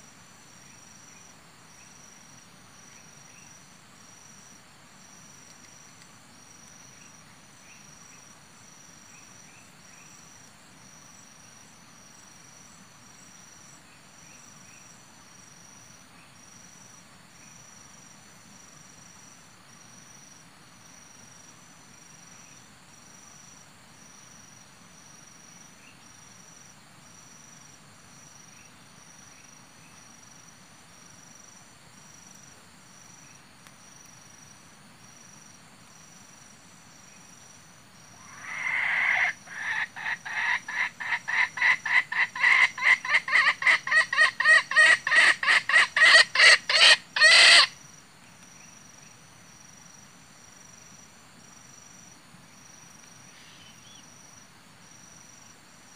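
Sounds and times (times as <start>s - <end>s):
crickets chirping: 0.0s - 55.9s
junglefowl clucking: 38.2s - 47.7s.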